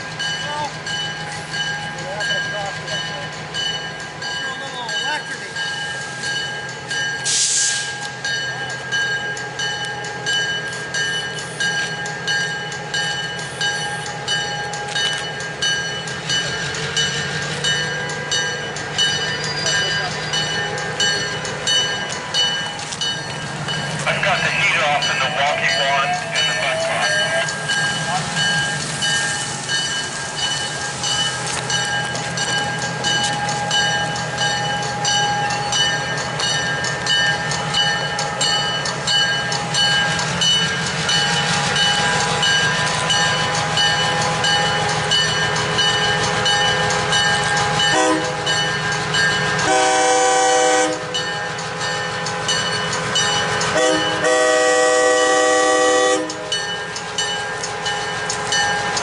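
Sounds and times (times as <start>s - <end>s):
train clicking on track: 0.0s - 59.0s
train horn: 47.9s - 48.5s, 49.6s - 51.1s, 53.8s - 56.5s.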